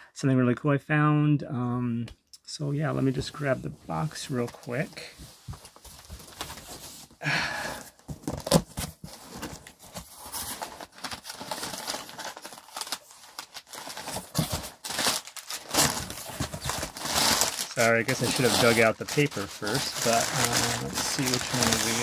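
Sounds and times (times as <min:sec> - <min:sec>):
paper packing crinkling: 0:08.2 - 0:22.0
box scraping: 0:15.6 - 0:22.0.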